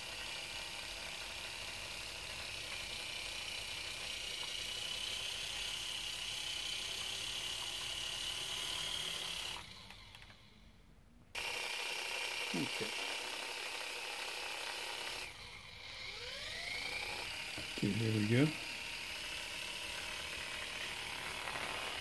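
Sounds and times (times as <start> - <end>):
toy helicopter rotor whine: 0.0 - 10.7, 11.3 - 22.0.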